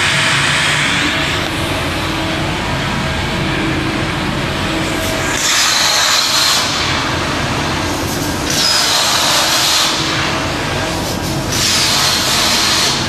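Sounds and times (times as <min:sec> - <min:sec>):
low machine hum: 0:00.0 - 0:13.0
plasma torch cutting hiss: 0:04.8 - 0:13.0.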